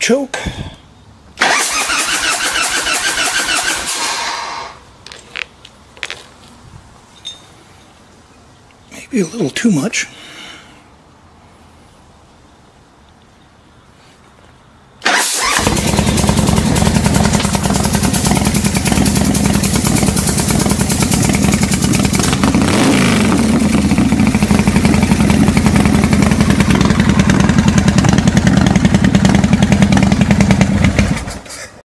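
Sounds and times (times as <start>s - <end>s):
motorcycle engine revving: 1.4s - 4.8s, 15.0s - 31.5s
motorcycle engine running: 15.4s - 31.4s.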